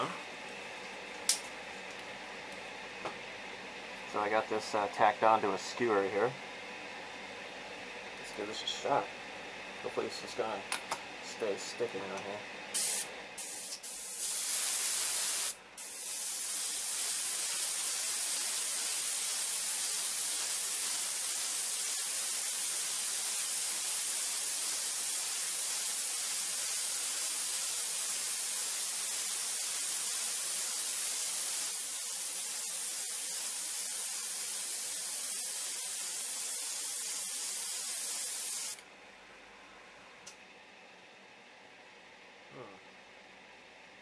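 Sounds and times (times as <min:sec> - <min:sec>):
airbrush spraying hiss: 0:12.8 - 0:38.8.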